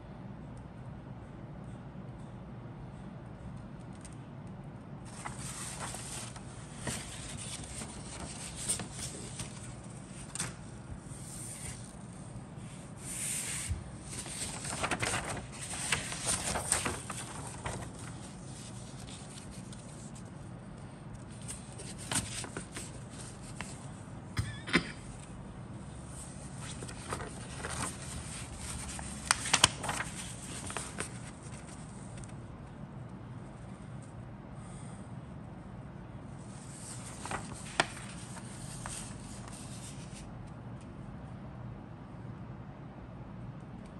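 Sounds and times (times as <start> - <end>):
paper rustling and crinkling: 5.1 - 12.0, 13.0 - 20.4, 21.1 - 24.0, 26.1 - 32.4, 36.4 - 40.3.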